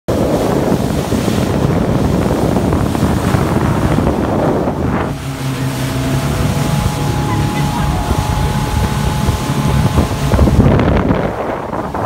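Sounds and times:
wind buffeting microphone: 0.1 - 12.0
water spraying: 0.3 - 12.0
low engine drone: 2.7 - 12.0.

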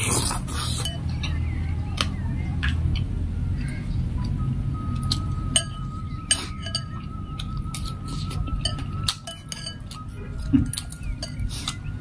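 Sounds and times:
cutlery clinking on glass bowl: 5.6 - 7.0, 8.6 - 11.4.

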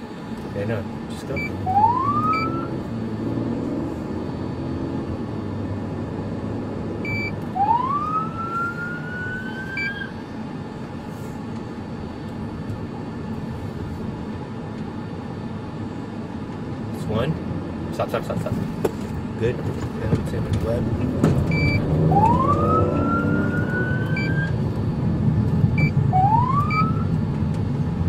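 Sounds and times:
car engine and road noise: 0.0 - 28.0
police siren wailing: 1.4 - 3.0, 7.0 - 10.2, 21.5 - 24.6, 25.8 - 27.2.

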